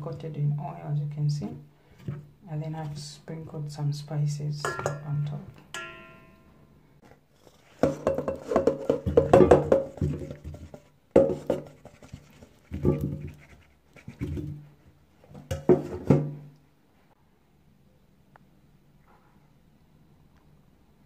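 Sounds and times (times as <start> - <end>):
metal bowl ringing: 4.6 - 6.8.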